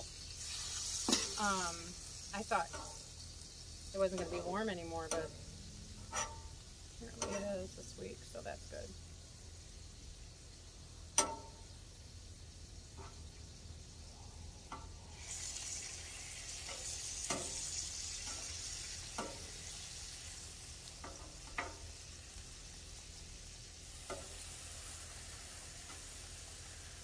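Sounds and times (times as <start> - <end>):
chicken sizzling on a griddle: 0.0 - 27.0
metal spatula scraping steel: 6.0 - 6.5.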